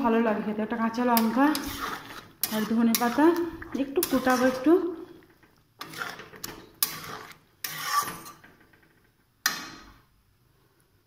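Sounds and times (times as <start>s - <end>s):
spatula scraping a metal pan: 1.2s - 8.6s.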